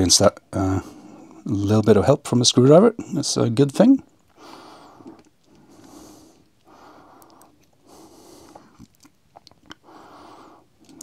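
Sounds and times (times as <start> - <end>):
man breathing through the nose: 4.3 - 8.8, 9.8 - 11.0.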